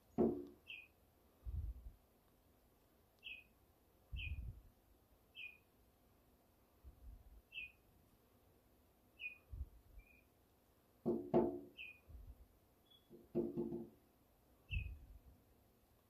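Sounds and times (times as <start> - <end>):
robin chirping: 0.0 - 1.0, 3.2 - 4.6, 5.3 - 5.7, 7.4 - 7.9, 9.1 - 10.4, 11.6 - 12.2, 12.8 - 13.2, 14.6 - 15.1.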